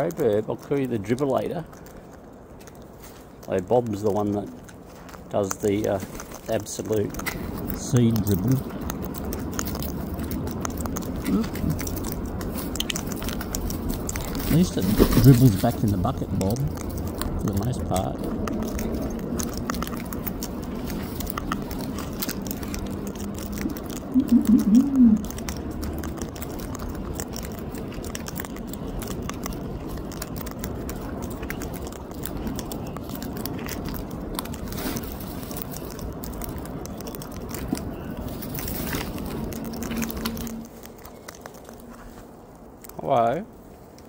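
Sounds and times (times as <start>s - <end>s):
low pitched bird vocal sounds: 23.6s - 25.3s.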